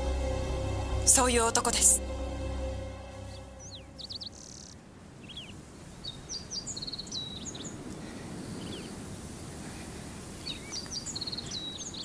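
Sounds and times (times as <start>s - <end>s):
low outdoor rumble: 0.0s - 5.1s
songbirds chirping: 0.0s - 12.0s
bird trill: 3.6s - 5.5s.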